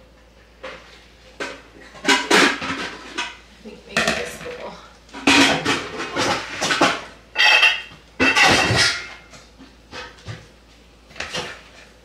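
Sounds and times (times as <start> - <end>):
dishes clattering: 0.6 - 3.4, 4.0 - 10.4.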